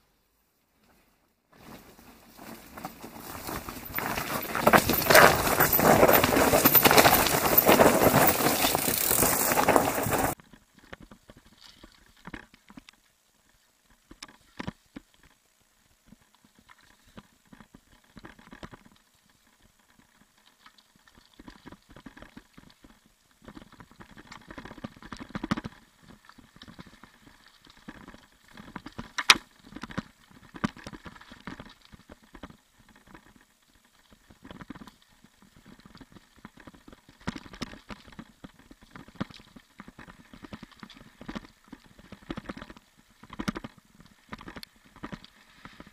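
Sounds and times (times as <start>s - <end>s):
bike tyre rush passing: 1.6s - 10.4s
bike rattling on rocky trail: 1.6s - 12.9s, 16.5s - 45.9s.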